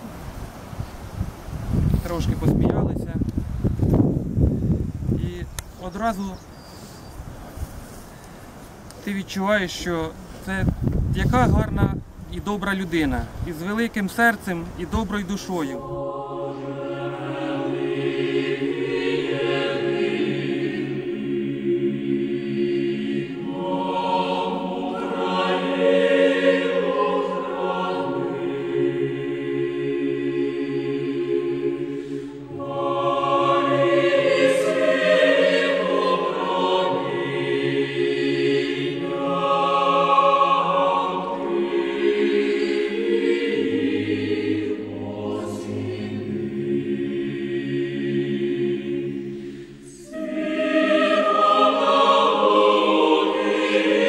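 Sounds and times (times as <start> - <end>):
choir singing sustained chords: 0.0 - 2.2, 14.7 - 54.0
breath: 6.6 - 7.2, 7.8 - 8.5, 32.0 - 32.4, 49.3 - 49.9.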